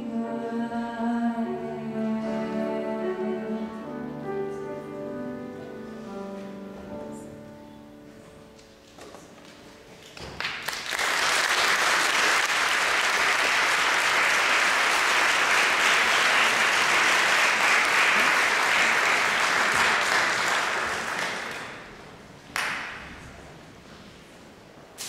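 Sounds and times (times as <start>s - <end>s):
audience applauding: 10.0s - 23.0s.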